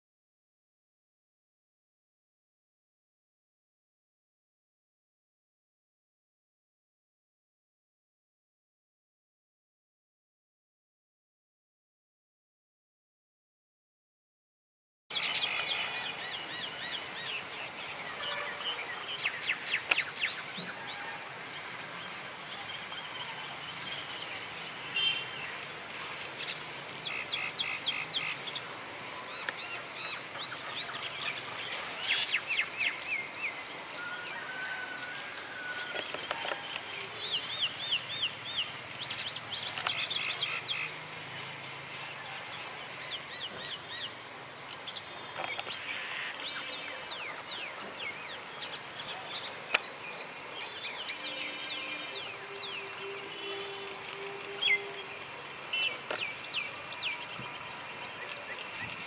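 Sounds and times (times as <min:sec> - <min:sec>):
birds chirping and calling: 0:15.1 - 0:34.6, 0:35.3 - 0:59.0
steady outdoor hiss: 0:15.1 - 0:59.0.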